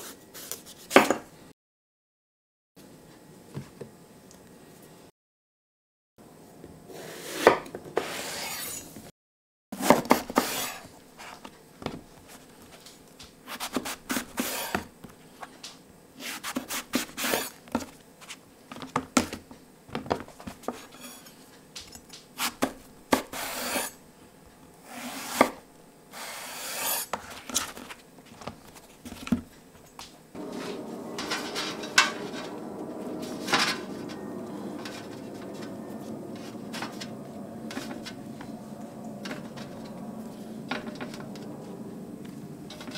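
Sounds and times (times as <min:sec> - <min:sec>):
steady hiss: 0:26.1 - 0:27.1.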